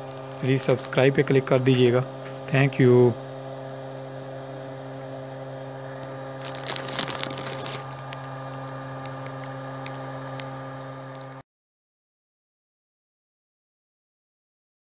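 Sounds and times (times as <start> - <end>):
crackling rustle: 0.0 - 1.0, 6.0 - 10.5
battery charger fan humming: 0.0 - 11.4.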